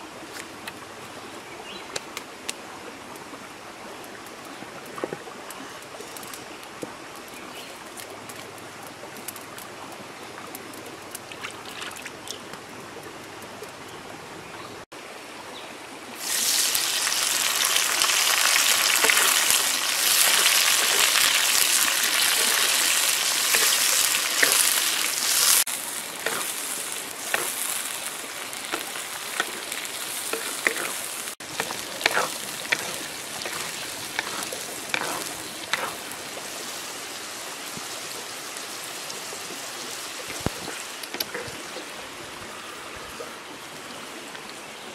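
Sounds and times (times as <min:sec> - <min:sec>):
wood fire crackling and popping: 0:07.1 - 0:09.7, 0:17.0 - 0:36.4
food frying in hot oil: 0:16.2 - 0:42.1.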